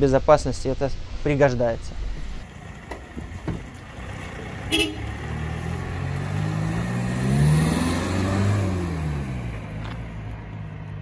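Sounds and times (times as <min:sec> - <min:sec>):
van engine driving past: 0:02.4 - 0:11.0.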